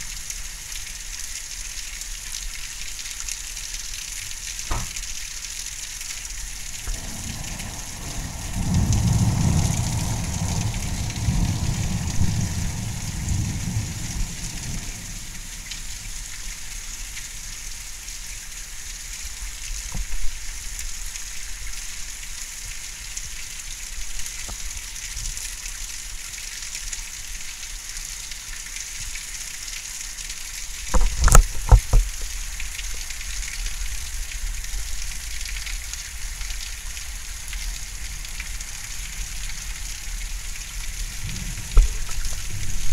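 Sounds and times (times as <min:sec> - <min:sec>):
heavy rain hissing: 0:00.0 - 0:42.9
sharp knocks: 0:04.7 - 0:05.0
thunder rumbling: 0:06.8 - 0:15.6, 0:40.9 - 0:42.9.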